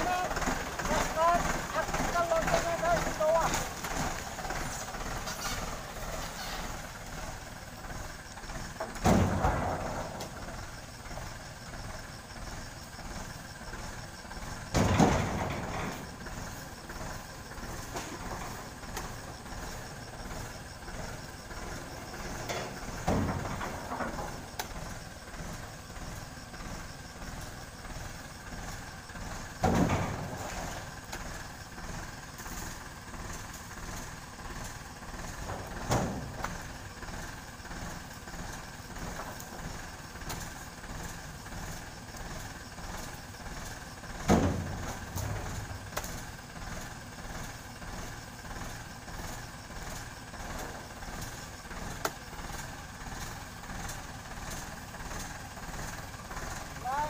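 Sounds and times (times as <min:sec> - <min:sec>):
tractor engine idling: 0:00.0 - 0:57.0
heavy thuds in metal trailer: 0:05.4 - 0:11.3, 0:14.4 - 0:25.6, 0:29.2 - 0:31.4, 0:32.6 - 0:39.9, 0:42.4 - 0:48.6.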